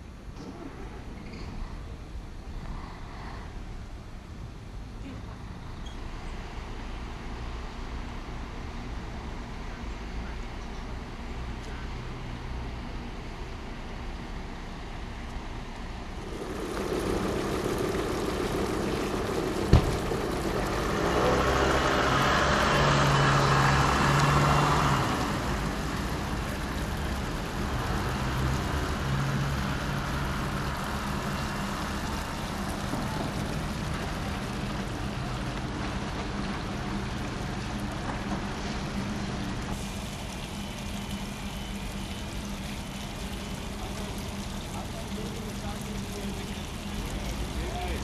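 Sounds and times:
outdoor noise with low hum: 0.0 - 48.0
vehicle engine running: 15.9 - 48.0.

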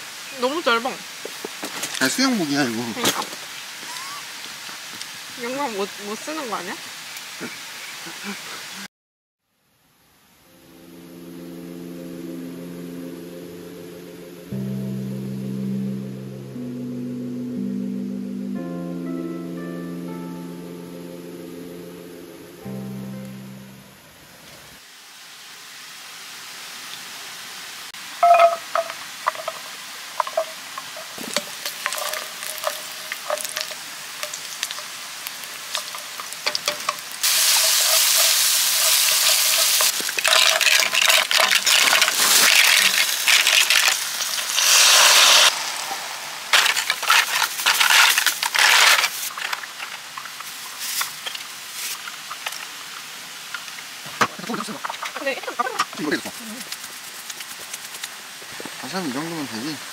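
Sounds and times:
beef sizzling on a grill: 28.2 - 59.8.

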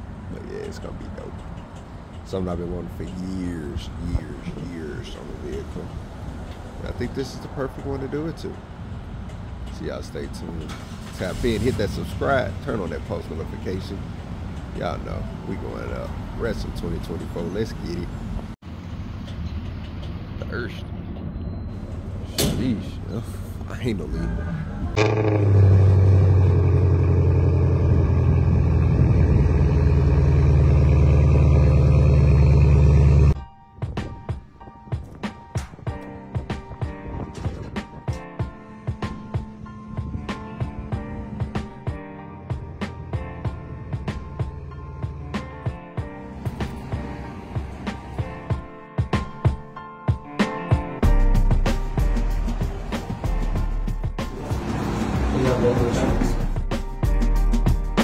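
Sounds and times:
vehicle engine deep rumble: 0.0 - 33.4, 36.9 - 48.6, 51.1 - 58.0
music with heavy bass: 32.6 - 58.0
steady drum beat: 38.4 - 58.0.

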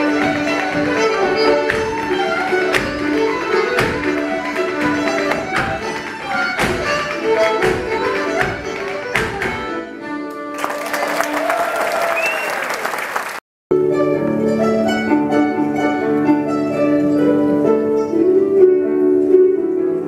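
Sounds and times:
folk tune playing: 0.0 - 11.4, 13.7 - 20.0
audience applauding: 10.5 - 13.4.

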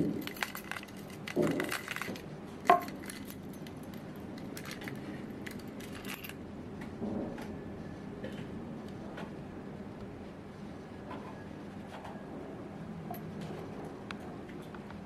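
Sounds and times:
keychain clinking and jingling: 0.0 - 6.4.

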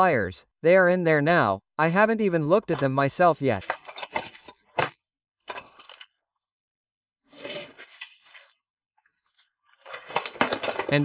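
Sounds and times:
paper and plastic bags rustling: 3.6 - 4.7, 7.3 - 8.6, 9.3 - 11.0.

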